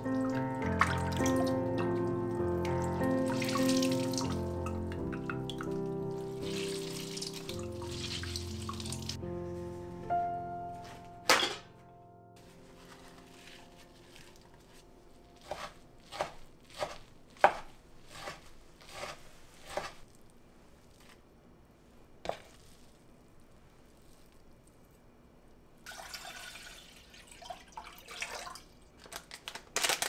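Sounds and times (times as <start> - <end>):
paper towel tearing: 12.4 - 14.8
knife chopping on wooden board: 15.4 - 20.0.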